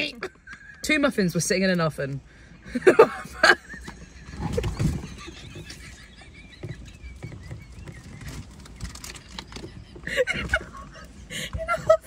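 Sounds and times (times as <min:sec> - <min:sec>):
stifled muffled laughter: 0:02.6 - 0:12.0.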